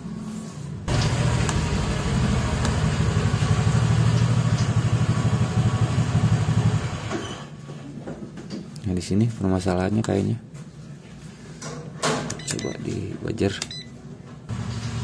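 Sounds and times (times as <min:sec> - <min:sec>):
engine running with rapid pulse: 0:00.9 - 0:07.1.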